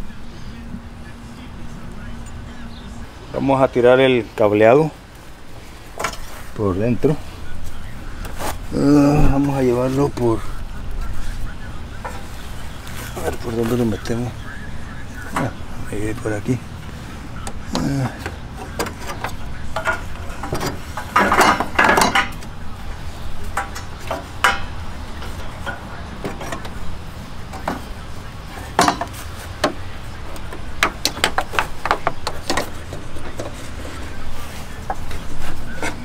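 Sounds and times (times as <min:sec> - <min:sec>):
tools and parts clattering: 0:05.9 - 0:06.4, 0:17.4 - 0:36.0.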